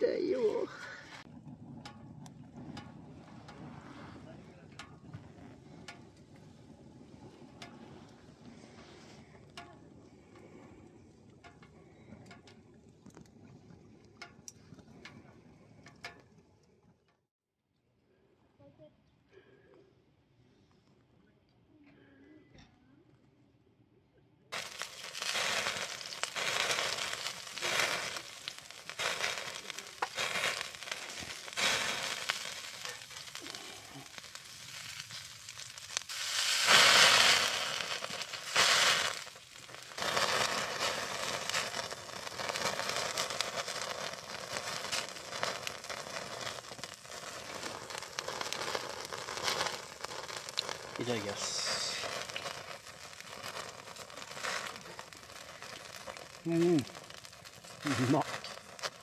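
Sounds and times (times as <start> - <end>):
food sizzling in a pan: 24.6 - 59.0.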